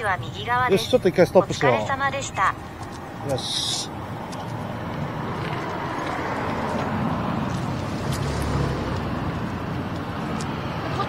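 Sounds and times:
vehicle engine rumbling past: 3.2s - 11.0s.

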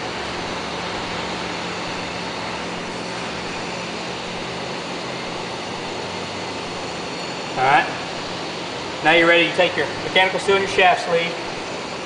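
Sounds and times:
ventilation fan whooshing with hum: 0.0s - 12.0s.

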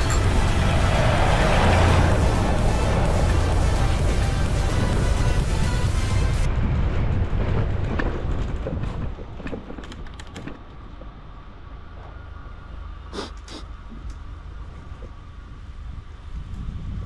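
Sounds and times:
wind and road rumble: 0.0s - 17.0s
bicycle clicks and rattles: 7.9s - 10.8s.

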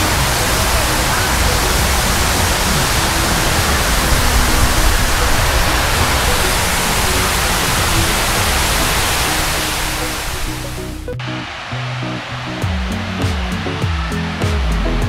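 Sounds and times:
water rushing down fountain wall: 0.0s - 10.9s.

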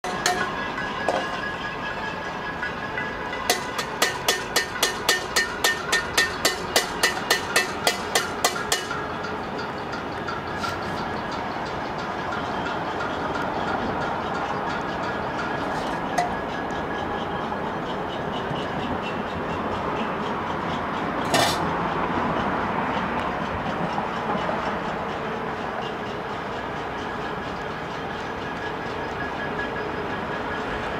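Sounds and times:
pots and pans being struck: 0.0s - 1.4s, 3.5s - 9.1s, 15.8s - 16.4s, 21.2s - 21.6s
distant pots banging clatter: 21.2s - 21.6s.

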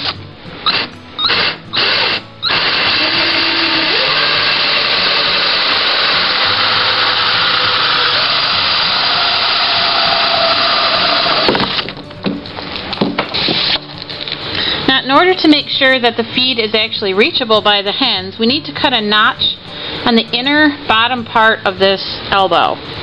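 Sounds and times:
drill hole saw grinding plastic: 0.0s - 11.8s.

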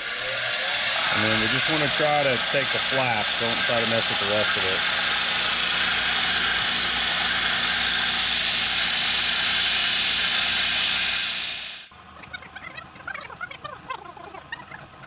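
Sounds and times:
belt grinder grinding metal: 0.0s - 11.8s
motor hum: 0.0s - 15.0s.

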